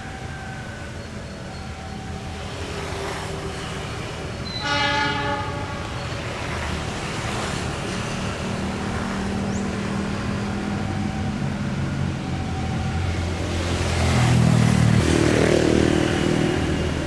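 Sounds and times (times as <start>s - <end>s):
locomotive horn blast: 4.4s - 6.1s.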